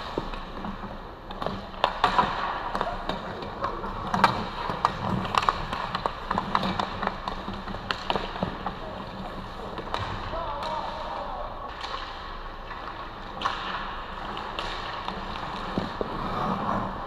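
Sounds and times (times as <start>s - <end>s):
hockey sticks clacking: 0.0s - 17.0s
skates hissing on ice: 14.4s - 17.0s.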